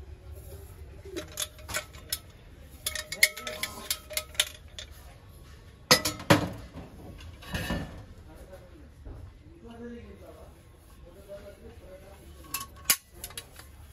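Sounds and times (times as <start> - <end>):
brass kitchenware clinking: 1.1 - 5.0, 5.9 - 6.6, 12.3 - 13.6.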